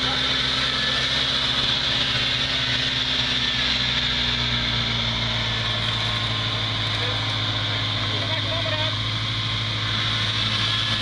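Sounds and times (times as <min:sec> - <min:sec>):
off-road vehicle engine running: 0:00.0 - 0:11.0.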